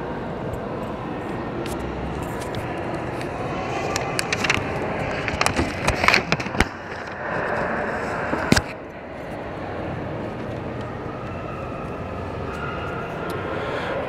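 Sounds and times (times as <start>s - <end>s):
public hall ambience: 0.0s - 14.0s
sharp clicks and knocks: 1.6s - 7.7s.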